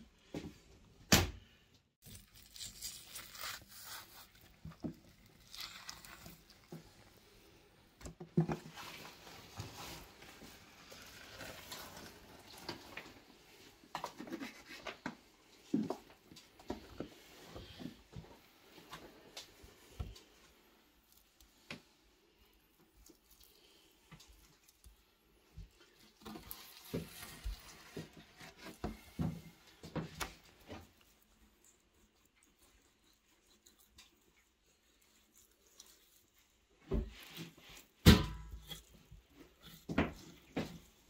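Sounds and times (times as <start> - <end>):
knife cutting through meat: 2.0 - 6.6
wet tearing of meat: 2.0 - 7.1
meat handling noises: 2.0 - 41.0.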